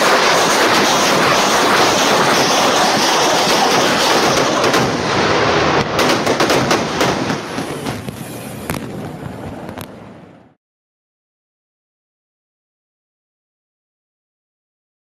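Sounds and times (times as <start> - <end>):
fireworks crackling pops: 0.0 - 10.2
dense loud rumble: 0.0 - 10.6.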